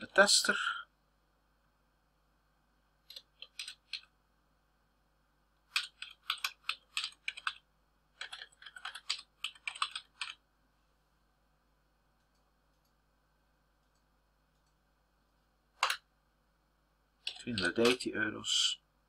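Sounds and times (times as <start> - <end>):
typing on computer keyboard: 3.0 - 4.1, 5.7 - 7.6, 8.2 - 10.4, 17.2 - 18.0.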